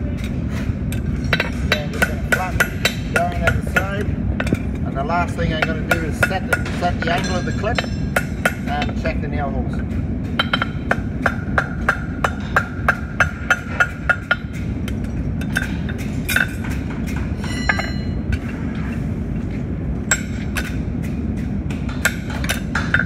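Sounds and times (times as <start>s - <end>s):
hammer ringing on anvil: 5.5s - 8.9s, 17.4s - 18.2s.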